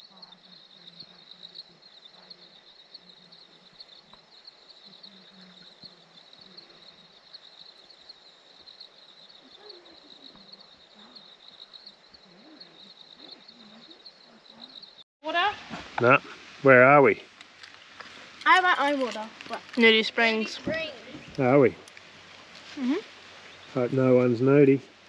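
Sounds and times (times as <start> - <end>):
distant voices murmuring: 0.0 - 15.0, 16.0 - 25.0
insects chirring: 0.0 - 25.0.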